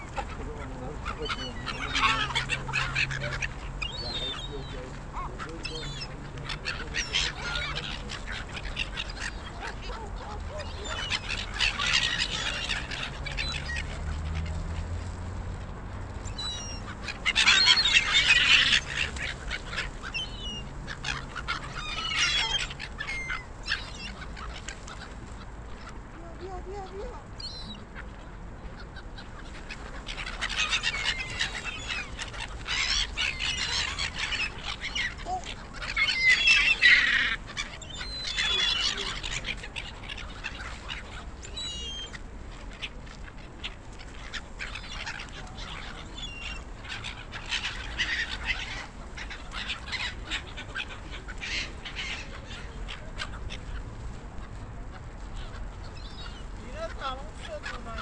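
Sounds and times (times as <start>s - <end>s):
gulls calling: 0.0s - 15.0s, 16.2s - 58.0s.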